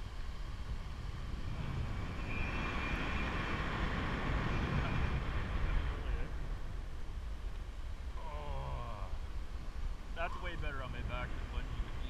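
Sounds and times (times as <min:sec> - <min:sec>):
wind buffeting microphone: 0:00.0 - 0:08.2
faint high whine: 0:00.0 - 0:12.0.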